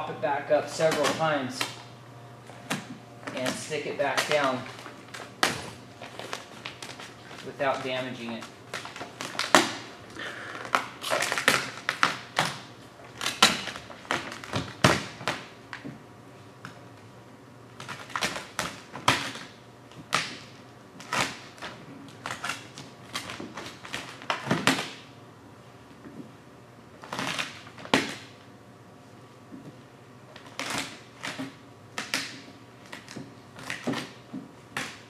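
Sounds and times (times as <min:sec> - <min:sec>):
vinyl film crackling and snapping: 0:02.7 - 0:09.8, 0:10.6 - 0:15.8, 0:17.8 - 0:25.0, 0:27.0 - 0:28.3, 0:30.3 - 0:35.0.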